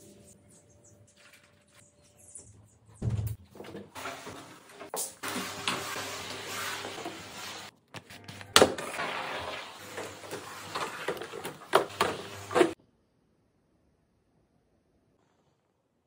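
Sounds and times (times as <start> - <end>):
steam cleaner hissing: 4.0 - 7.7, 9.0 - 12.8.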